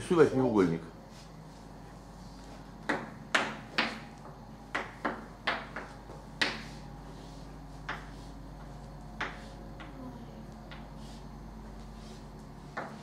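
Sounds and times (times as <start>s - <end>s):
chalk tapping on blackboard: 2.8s - 10.0s, 10.7s - 11.2s, 11.9s - 13.0s.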